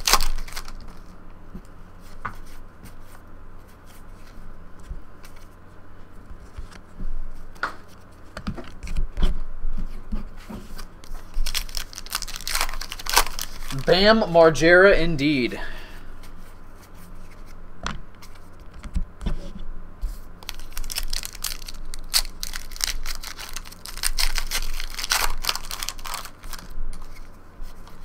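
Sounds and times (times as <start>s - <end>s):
wrapper crinkling and tearing: 0.0s - 1.1s, 11.0s - 14.0s, 20.4s - 27.3s
cards being handled: 0.0s - 1.2s, 2.0s - 5.6s, 9.8s - 14.0s, 20.1s - 28.0s.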